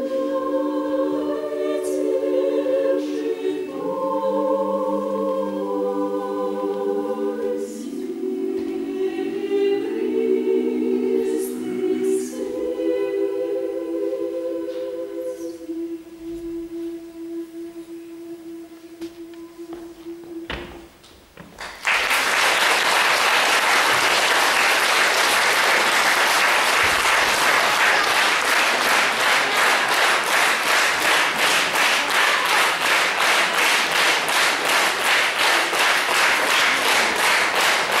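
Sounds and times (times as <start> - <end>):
choir holding a note: 0.0 - 20.9, 22.2 - 38.0
crowd clapping in unison: 21.4 - 38.0
audience applause: 21.6 - 38.0.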